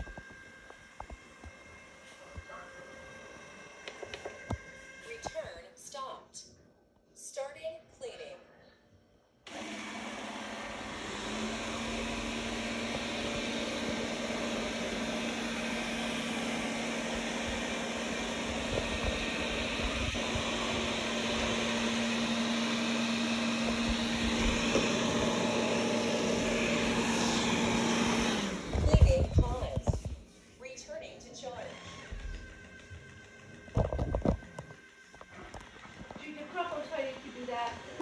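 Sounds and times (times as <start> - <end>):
robot vacuum cleaner whirring: 0.0 - 5.6, 9.5 - 30.1, 31.4 - 38.0
steady low hum: 11.6 - 27.4.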